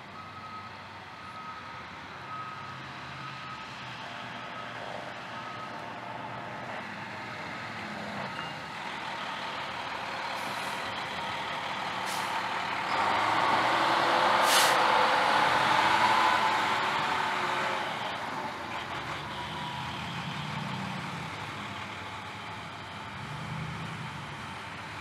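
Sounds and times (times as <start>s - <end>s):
diesel engine: 0.0s - 25.0s
air brake hisses: 12.0s - 12.4s, 14.4s - 14.8s.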